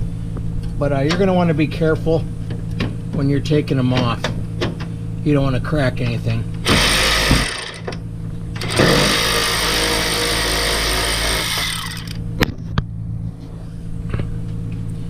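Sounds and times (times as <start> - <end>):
power ratchet running: 6.6 - 7.9, 8.5 - 12.2.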